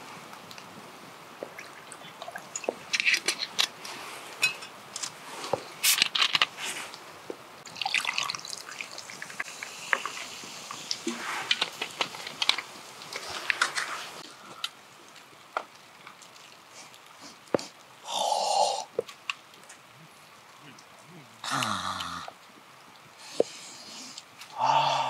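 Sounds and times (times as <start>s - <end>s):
rice bubbling in pot: 6.8s - 25.0s.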